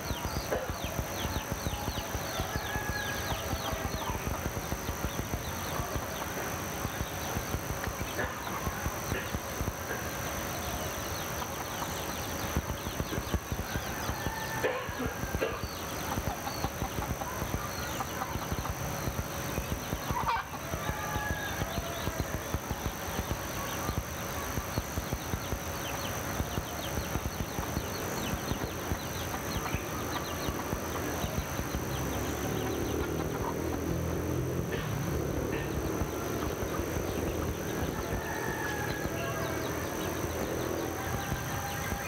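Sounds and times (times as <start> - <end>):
chickens clucking: 0.0 - 42.0
small birds chirping: 0.0 - 42.0.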